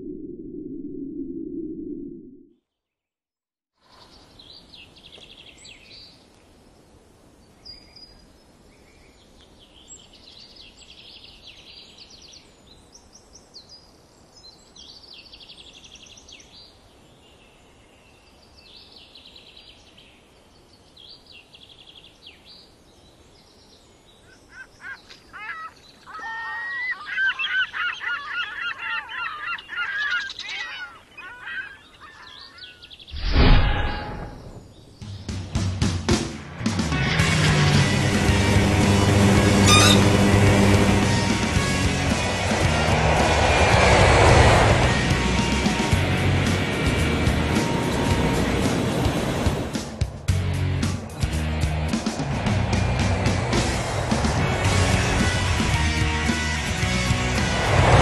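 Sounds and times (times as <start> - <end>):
bird calls and chirps: 7.4 - 35.4, 39.4 - 40.2
warbling bird calls: 24.2 - 33.2, 38.8 - 41.0.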